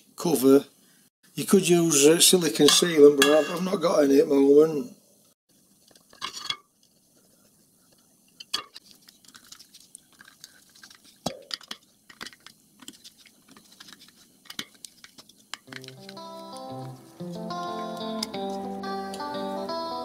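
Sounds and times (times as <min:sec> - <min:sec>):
clicks and taps of metal parts: 0:15.5 - 0:16.2.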